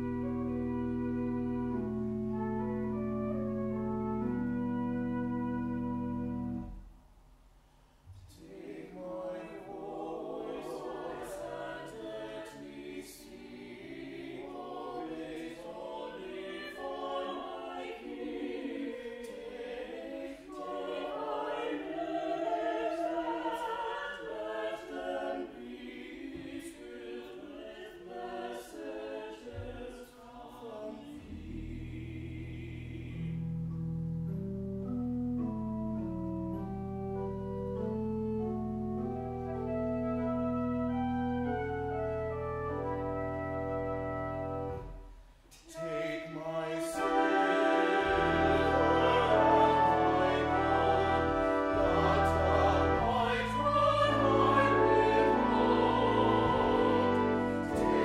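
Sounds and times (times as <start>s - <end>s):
low organ pedal notes: 0.0s - 6.8s, 31.4s - 45.0s, 47.0s - 58.0s
pipe organ: 0.0s - 6.9s, 31.2s - 45.1s, 46.3s - 58.0s
church choir singing a hymn: 8.3s - 33.6s, 38.0s - 58.0s.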